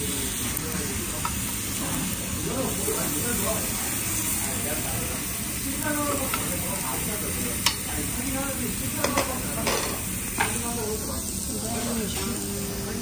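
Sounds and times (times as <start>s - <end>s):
meat sizzling on a grill: 0.0s - 13.0s
metal tongs clicking on grill: 6.2s - 6.6s, 7.5s - 7.9s, 9.0s - 10.6s.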